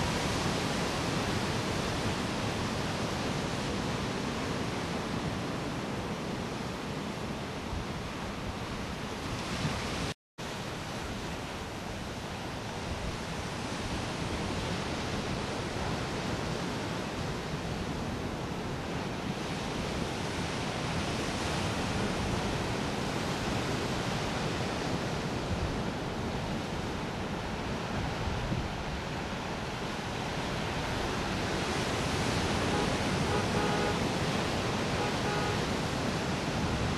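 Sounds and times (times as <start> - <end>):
ocean surf rushing: 0.0 - 36.9
wind on microphone: 12.7 - 36.9.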